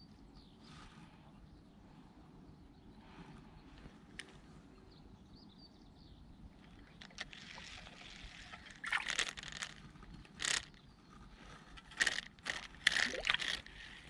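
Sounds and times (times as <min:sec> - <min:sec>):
fish splashing at water surface: 0:12.9 - 0:13.7.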